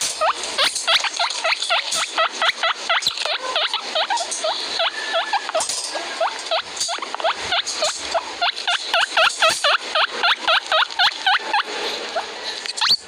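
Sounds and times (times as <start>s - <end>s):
guinea pig wheeking: 0.0s - 13.0s.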